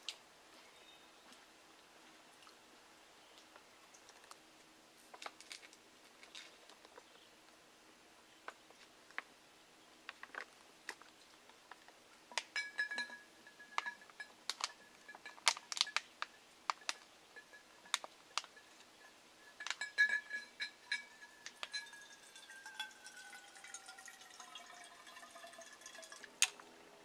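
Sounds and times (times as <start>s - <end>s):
plastic pouch crinkling and clicking: 15.4s - 17.0s
thin high steady tone: 16.4s - 26.4s.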